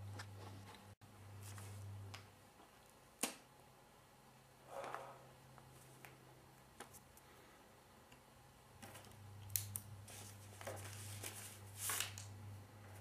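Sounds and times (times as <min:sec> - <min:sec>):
low steady hum: 0:00.0 - 0:13.0
paper rustling: 0:10.0 - 0:12.3.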